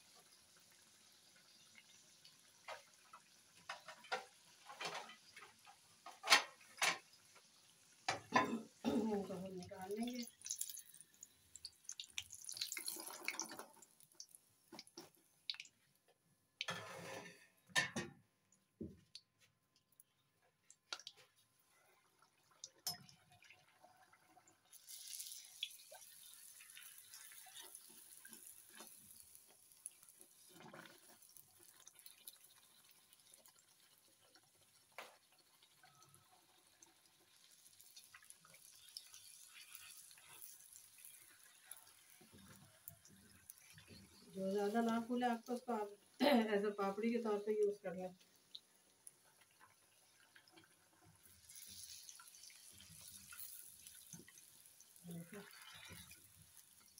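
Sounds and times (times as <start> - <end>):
food frying in hot oil: 0.0 - 16.0, 19.9 - 56.9
metal skimmer scraping pan: 16.7 - 18.0.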